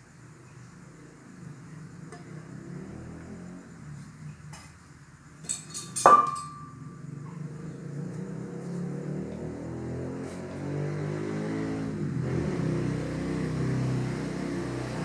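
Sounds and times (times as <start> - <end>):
ringing metal clank: 5.4 - 7.0
light metallic clinks: 5.4 - 7.5.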